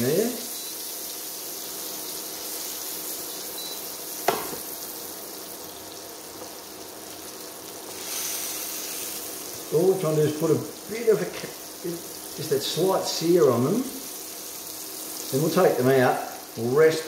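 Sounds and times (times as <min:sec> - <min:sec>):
mushrooms sizzling in a frying pan: 0:00.0 - 0:17.0
sharp knock: 0:04.2 - 0:04.6.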